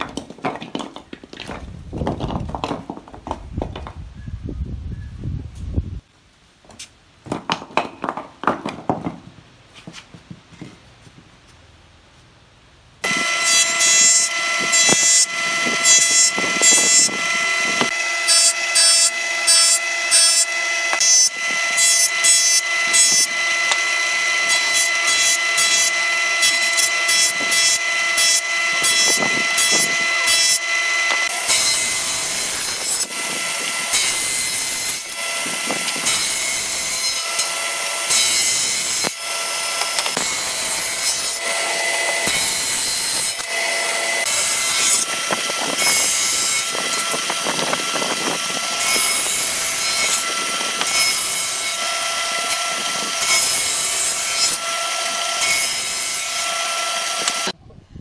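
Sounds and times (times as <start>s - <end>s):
wooden blocks clattering on concrete: 0.0s - 4.0s, 7.2s - 10.8s
table saw cutting wood: 13.0s - 57.6s
woodworking machine whining: 13.0s - 57.6s.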